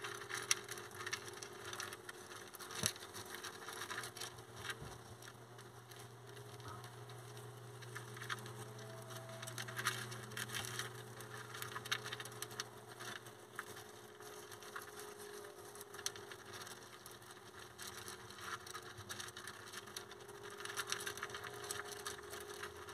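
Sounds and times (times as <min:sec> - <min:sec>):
hamsters crunching food: 0:00.0 - 0:22.9
low hum: 0:03.8 - 0:16.7.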